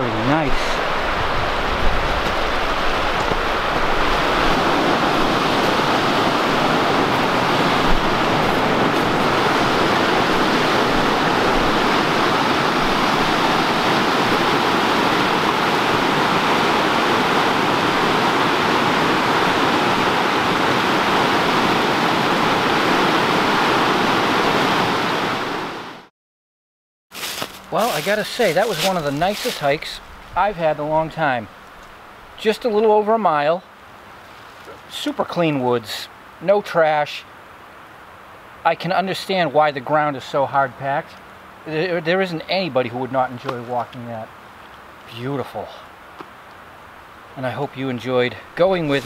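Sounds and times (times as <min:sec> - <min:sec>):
brook rushing over rapids: 0:00.0 - 0:26.1, 0:27.2 - 0:31.2.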